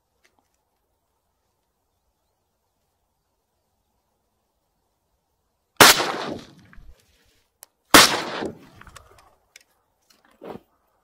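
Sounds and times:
shotgun shots with echo: 5.8 - 6.9, 7.9 - 8.6
faint clicks: 8.7 - 10.4.

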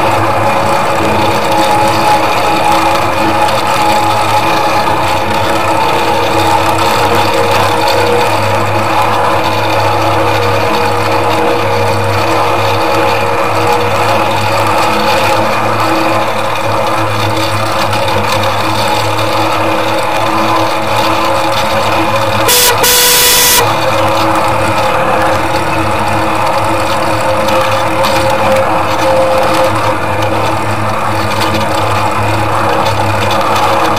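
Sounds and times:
miniature train mechanical hum: 0.0 - 33.9.

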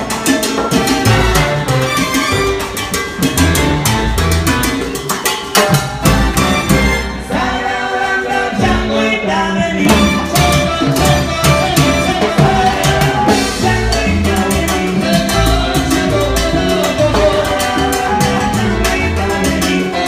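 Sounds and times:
percussion hits: 0.0 - 7.8, 9.8 - 20.0
salsa band playing: 0.0 - 20.0
man singing: 7.3 - 20.0.

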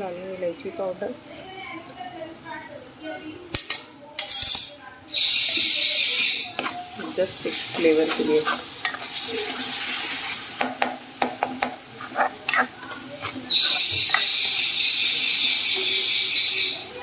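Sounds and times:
food sizzling: 0.0 - 4.2, 4.8 - 17.0
steel spoon scraping a pan: 5.6 - 10.6, 11.6 - 15.4.

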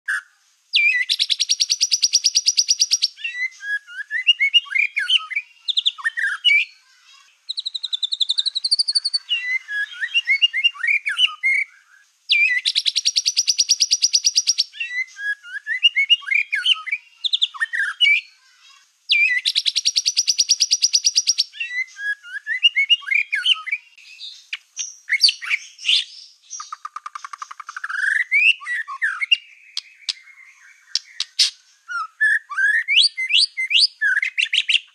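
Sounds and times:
bird whistles and chattering: 0.1 - 6.7, 7.5 - 11.7, 12.3 - 18.3, 19.1 - 23.8, 24.8 - 34.9.

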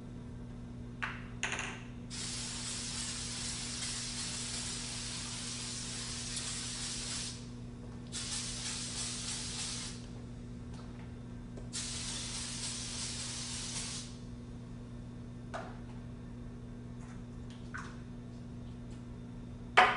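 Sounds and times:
steady low hum: 0.0 - 19.9
aerosol spray hissing: 2.1 - 7.5, 8.1 - 10.1, 11.7 - 14.2.

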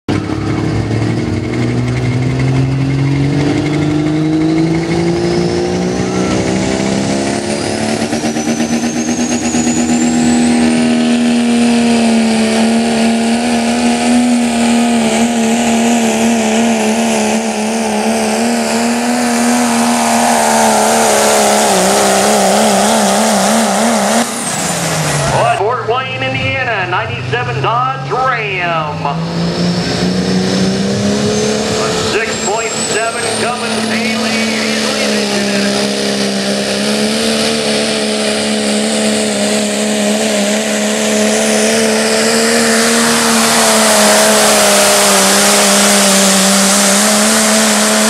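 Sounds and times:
diesel truck engine at full throttle: 0.0 - 48.0
turbo whistle: 5.7 - 6.7.

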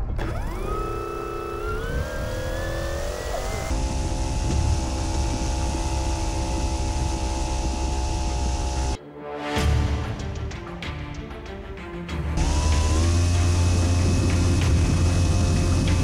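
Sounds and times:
electric motor and propeller whine: 0.0 - 9.0, 12.4 - 16.0.

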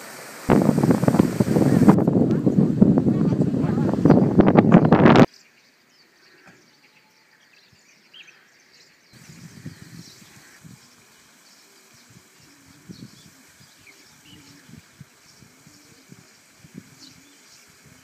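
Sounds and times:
wind on microphone: 0.3 - 5.3, 9.2 - 11.0, 11.9 - 18.0
soft bird chirps: 4.0 - 18.0.

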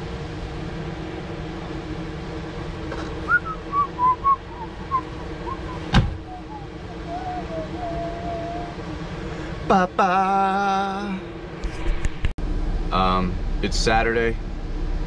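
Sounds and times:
low hum: 0.0 - 15.0
dog whining: 3.3 - 8.8.

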